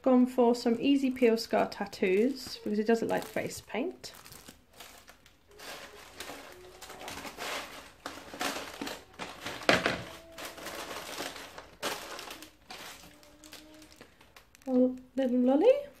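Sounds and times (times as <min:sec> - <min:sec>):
plastic packaging crinkling: 0:00.6 - 0:16.0
tissue paper rustling: 0:00.8 - 0:14.3.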